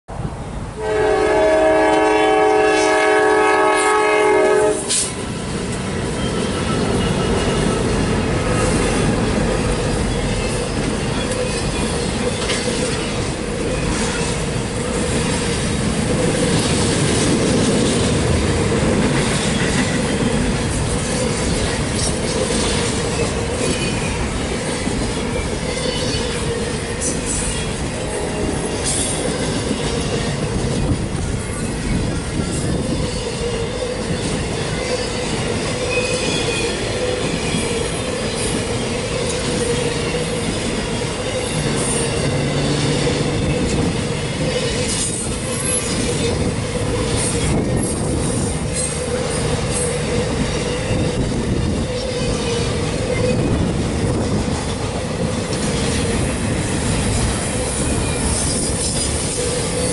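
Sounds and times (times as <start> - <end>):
train rumble and wheel clatter: 0.1 - 59.9
train horn blast: 0.8 - 5.2, 27.8 - 29.2
high wheel squeals: 5.9 - 15.3, 21.1 - 53.7, 56.9 - 59.9.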